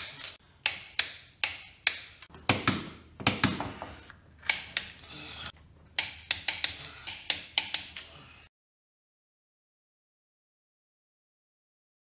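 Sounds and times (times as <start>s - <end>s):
torque wrench clicking: 0.0s - 2.3s, 6.0s - 8.1s.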